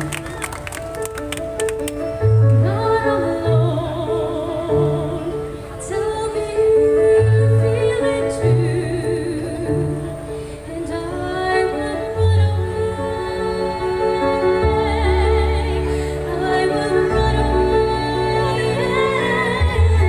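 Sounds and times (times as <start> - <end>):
women singing into microphones: 2.6 - 20.0.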